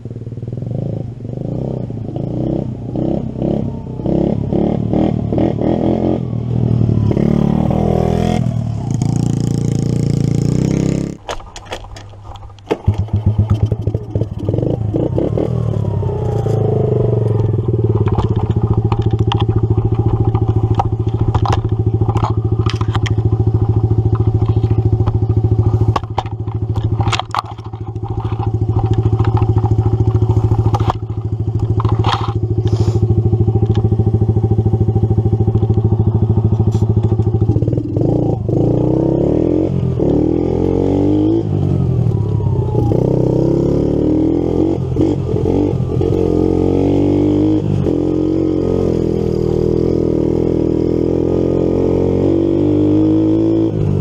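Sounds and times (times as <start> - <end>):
small engine revving: 27.9 - 54.0.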